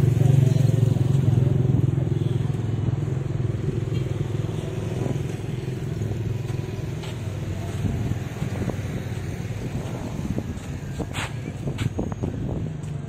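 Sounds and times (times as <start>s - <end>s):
engine rumbling: 0.0s - 13.0s.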